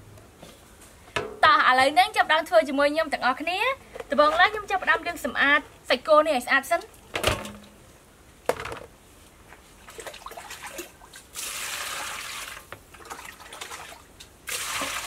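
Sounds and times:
water pouring onto meat: 10.2s - 15.0s.

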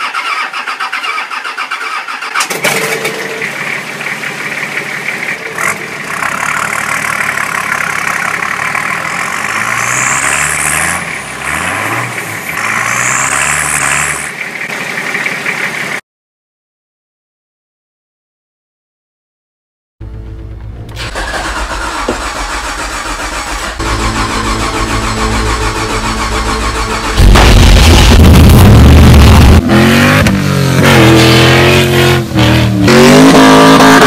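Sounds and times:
diesel engine cranking and idling: 0.0s - 16.0s, 20.0s - 31.3s
diesel engine revving: 0.0s - 16.0s, 20.2s - 34.0s
high turbo whistle: 23.8s - 27.9s.

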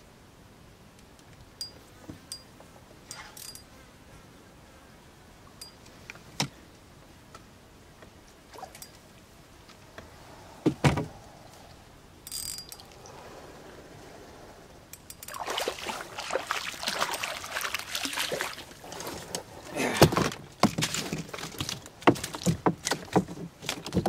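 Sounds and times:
fish splashing at surface: 15.2s - 19.2s.

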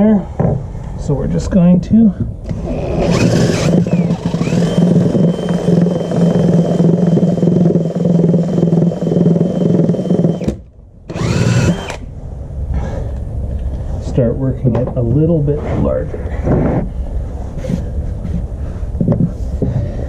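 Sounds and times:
power drill boring through wood: 2.4s - 12.0s.

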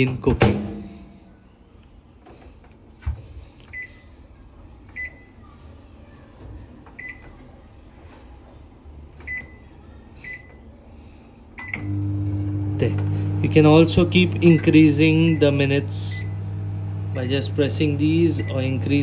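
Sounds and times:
microwave oven humming: 11.6s - 19.0s.

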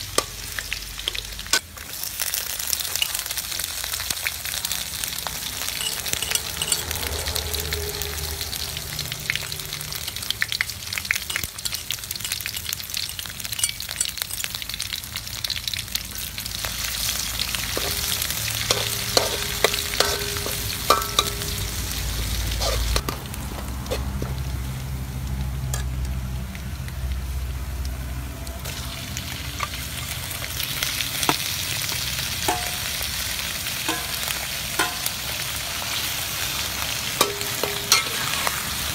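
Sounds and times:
oil sizzling in a wok: 0.0s - 38.9s
metal spoon scraping a pan: 5.7s - 7.7s, 11.2s - 14.5s, 17.0s - 24.6s, 30.8s - 33.2s, 33.8s - 38.9s.

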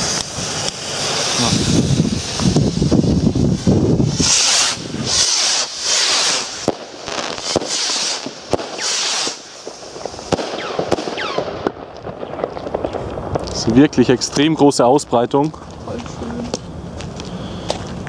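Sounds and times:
rocket motors hissing: 0.0s - 6.7s
sharp firework bangs: 0.0s - 14.5s.

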